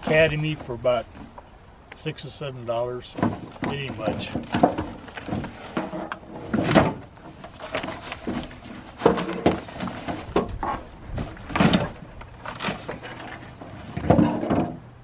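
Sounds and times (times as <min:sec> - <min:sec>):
chairs knocking truck bed: 0:03.1 - 0:14.9
fabric rustling and scraping: 0:04.4 - 0:14.5.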